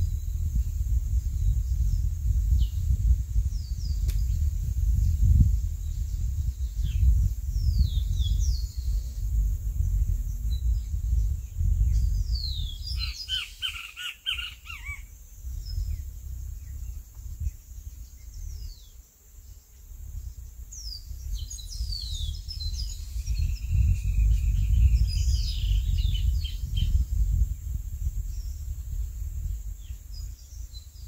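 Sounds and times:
wind on microphone: 0:00.0 - 0:31.0
bird chirps: 0:11.9 - 0:16.0.

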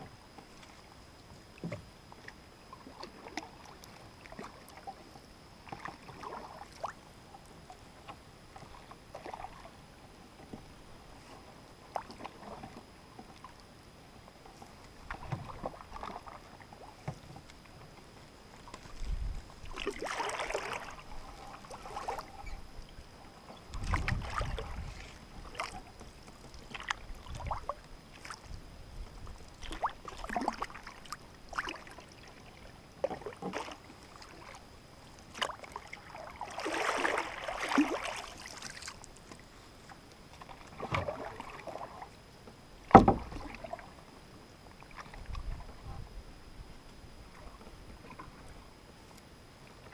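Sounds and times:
paddle swishes and splashes: 0:05.7 - 0:07.0, 0:08.5 - 0:09.8, 0:14.6 - 0:17.5, 0:18.6 - 0:22.6, 0:23.4 - 0:42.2, 0:42.9 - 0:44.0.

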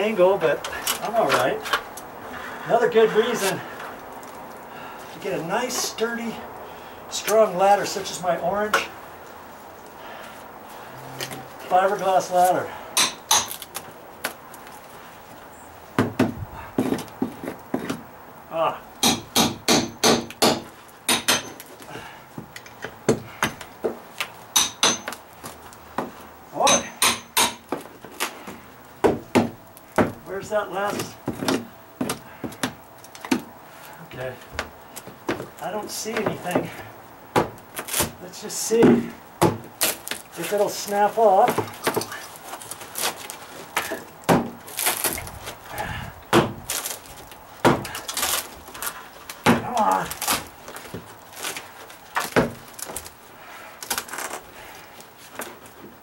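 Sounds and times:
hammer striking steel pry bar: 0:13.0 - 0:13.6, 0:19.0 - 0:21.6, 0:24.6 - 0:25.2, 0:26.7 - 0:27.6
rotten wood cracking and splintering: 0:37.3 - 0:56.0.

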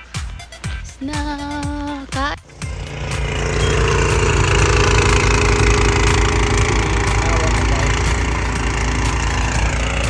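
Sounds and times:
snow blower engine running: 0:02.4 - 0:10.0.

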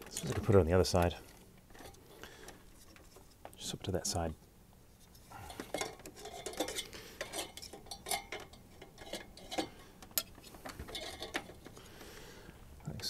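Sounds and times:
small metallic clicks and scrapes: 0:05.0 - 0:11.8.

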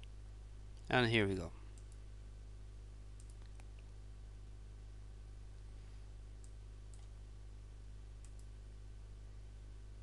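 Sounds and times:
low electrical hum: 0:00.0 - 0:10.0
computer mouse clicks: 0:01.7 - 0:02.0, 0:03.2 - 0:03.9, 0:06.4 - 0:07.2, 0:08.2 - 0:08.5.

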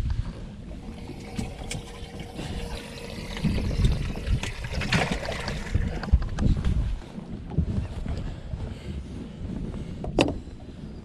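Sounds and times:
wind rumbling on microphone: 0:00.0 - 0:11.0
water trickling and splashing: 0:00.7 - 0:06.2.

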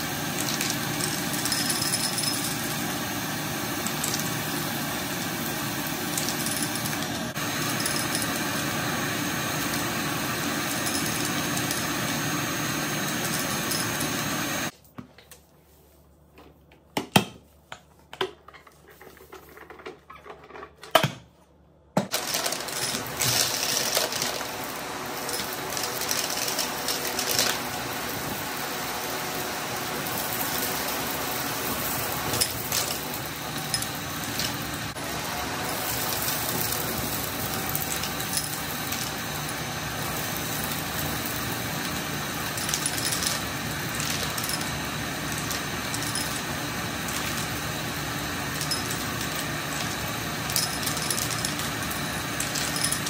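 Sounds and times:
vacuum cleaner on carpet: 0:00.0 - 0:14.7, 0:22.1 - 0:53.0
confetti rattling through vacuum: 0:35.7 - 0:41.6.

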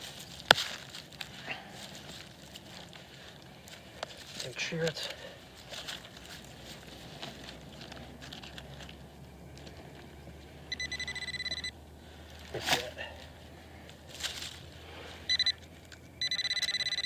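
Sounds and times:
pinpointer pulsing beep: 0:10.7 - 0:11.7, 0:15.3 - 0:15.6, 0:16.2 - 0:17.0.

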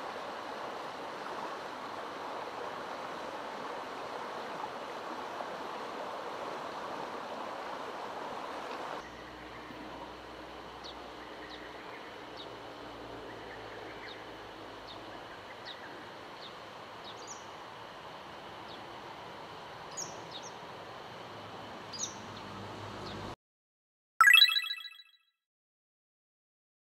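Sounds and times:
bird chirping: 0:24.2 - 0:25.1.

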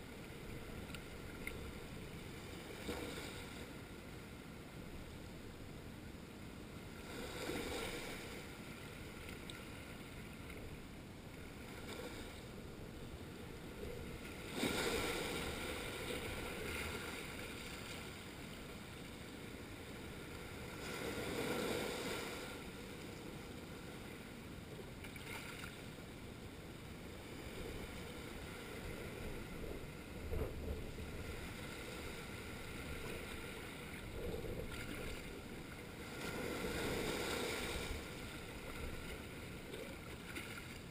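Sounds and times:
waves washing over rocks: 0:14.4 - 0:17.8.

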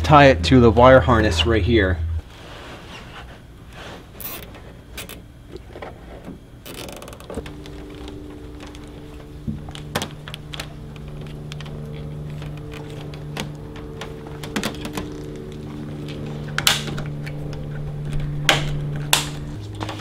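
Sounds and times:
low hum of held tones: 0:00.0 - 0:20.0
cable handling clicks: 0:06.7 - 0:20.0.

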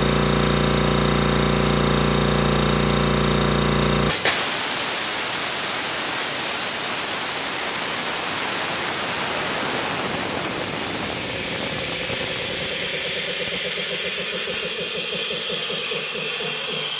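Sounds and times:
air compressor running with hiss: 0:00.0 - 0:16.9
fast rhythmic compressor beat: 0:11.6 - 0:16.9.

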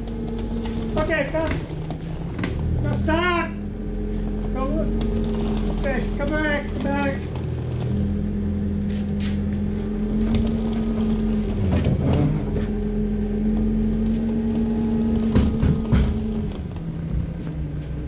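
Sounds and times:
forklift engine running: 0:00.0 - 0:18.0
clicks and knocks: 0:13.5 - 0:16.9.

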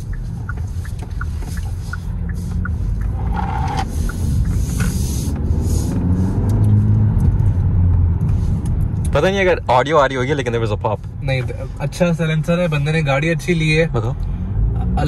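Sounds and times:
car engine accelerating: 0:00.0 - 0:15.0.

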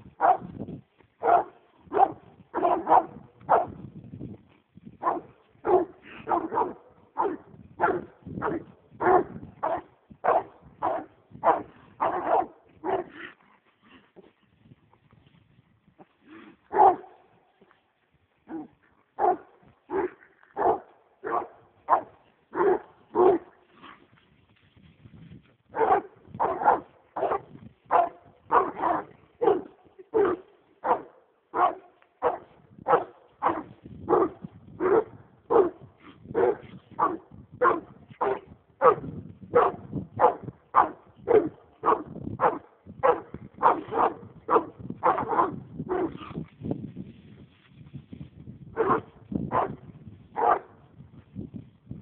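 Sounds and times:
dog barking: 0:00.2 - 0:00.5, 0:01.2 - 0:03.8, 0:05.0 - 0:13.3, 0:16.7 - 0:17.2, 0:18.5 - 0:23.5, 0:25.7 - 0:46.4, 0:48.8 - 0:49.8, 0:50.4 - 0:50.8.

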